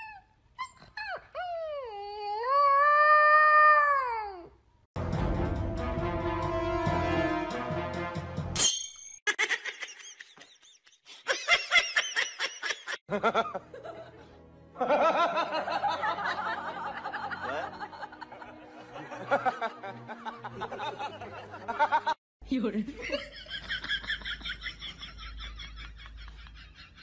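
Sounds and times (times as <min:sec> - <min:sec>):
background music: 0:05.0 - 0:08.7, 0:13.1 - 0:23.1
laughter: 0:09.3 - 0:22.2, 0:22.9 - 0:27.0.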